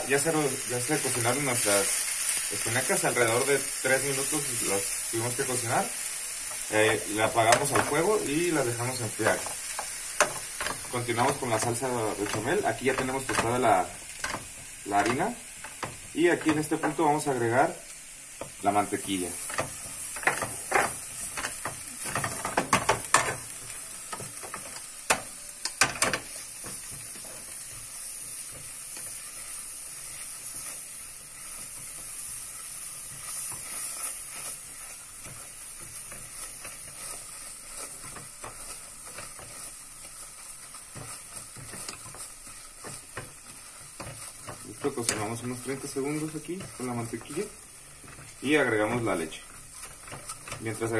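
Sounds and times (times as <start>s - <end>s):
steady sizzling: 0.0s - 50.9s.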